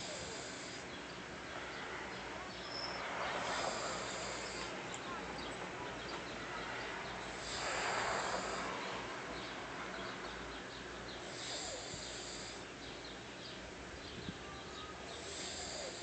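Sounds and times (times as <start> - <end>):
person breathing slowly: 3.0 - 5.0, 6.5 - 10.2, 11.3 - 12.7.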